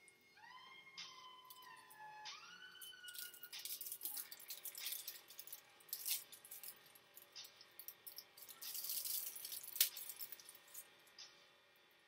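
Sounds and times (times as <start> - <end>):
wrapper crinkling: 2.8 - 11.0
chocolate bar snapping: 3.0 - 10.8.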